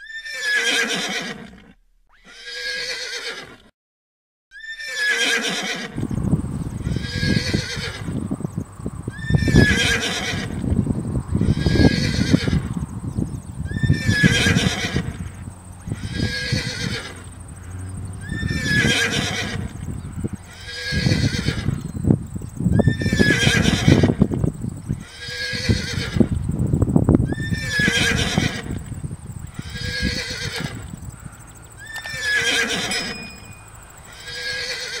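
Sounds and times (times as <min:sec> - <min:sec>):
horse whinnying: 0:00.0 - 0:03.7, 0:04.5 - 0:06.1, 0:06.8 - 0:08.2, 0:09.1 - 0:10.7, 0:11.4 - 0:12.7, 0:13.7 - 0:17.4, 0:18.2 - 0:21.9, 0:22.7 - 0:24.4, 0:25.0 - 0:26.4, 0:27.2 - 0:28.9, 0:29.5 - 0:30.9, 0:31.8 - 0:35.0.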